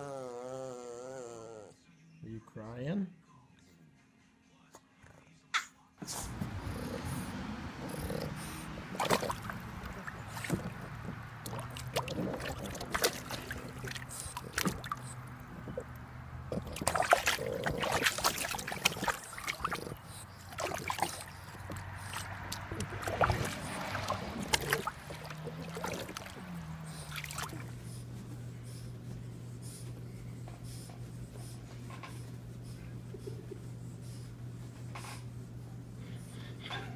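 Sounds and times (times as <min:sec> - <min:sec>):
water splashing in a plastic pool: 0:07.3 - 0:27.8.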